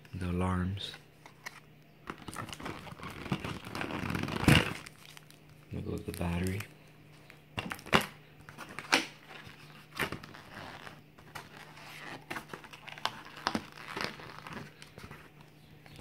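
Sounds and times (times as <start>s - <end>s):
plastic packaging crinkling: 2.1s - 6.8s, 7.6s - 15.4s.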